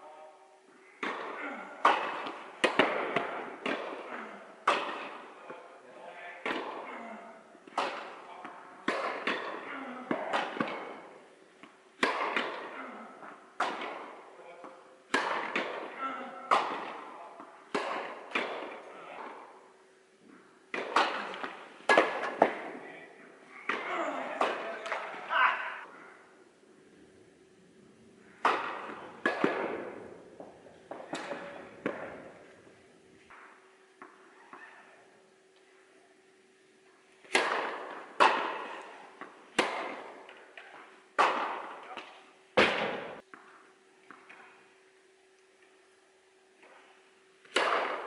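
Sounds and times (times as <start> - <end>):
racket striking tennis ball: 1.0 - 5.6, 6.4 - 6.8, 7.6 - 19.6, 20.3 - 22.8, 23.6 - 25.2, 28.2 - 32.4, 37.2 - 44.6, 46.6 - 48.0
tennis ball bouncing: 1.0 - 5.6, 7.6 - 12.7, 13.6 - 19.5, 20.3 - 22.8, 28.4 - 32.4, 33.3 - 34.6, 37.2 - 44.5, 47.4 - 48.0.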